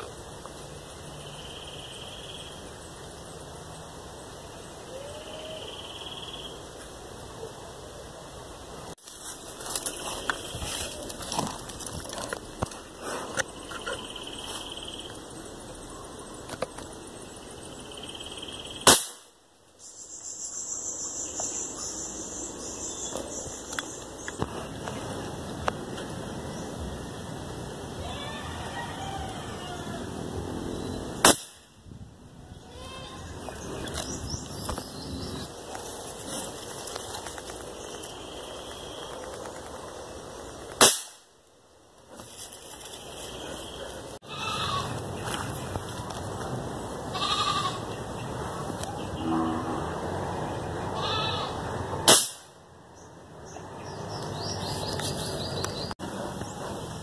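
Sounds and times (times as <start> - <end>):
air rifle shot: 18.8 - 19.3, 31.2 - 31.7, 40.8 - 41.3, 52.0 - 52.6.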